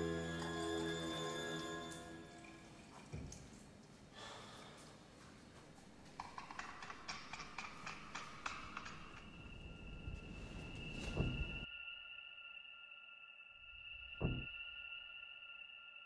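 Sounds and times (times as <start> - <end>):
small splashes and drips: 0.4 - 4.1
low thump: 14.2 - 14.6.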